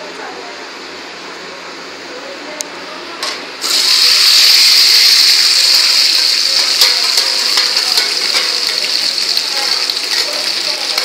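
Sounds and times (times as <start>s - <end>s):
onion sizzling in hot oil: 3.6s - 11.0s.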